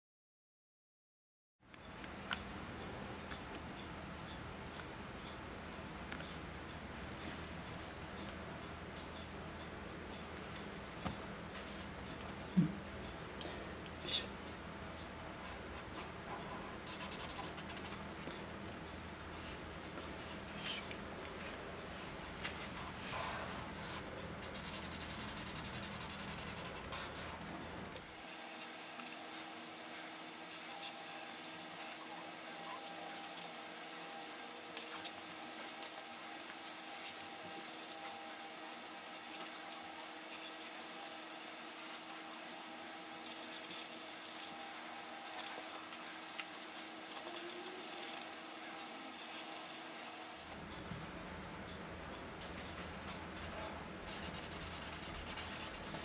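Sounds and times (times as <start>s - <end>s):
faint steady hum: 1.6s - 56.0s
marker pen scratching on paper: 15.8s - 18.0s, 23.8s - 27.4s, 54.1s - 56.0s.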